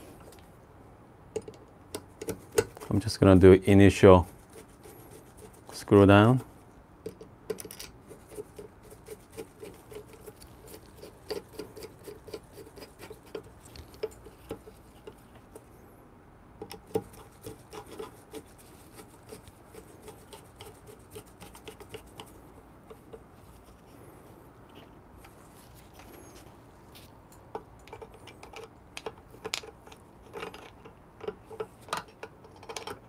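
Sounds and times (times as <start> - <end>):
screwdriver clicking and scraping: 1.4 - 3.0, 7.1 - 15.7, 27.3 - 33.0.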